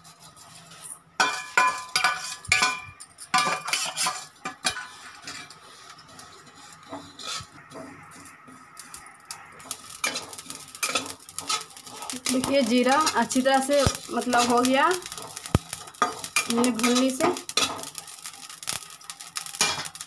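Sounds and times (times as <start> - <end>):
spoon scraping a pan: 0.0 - 20.0.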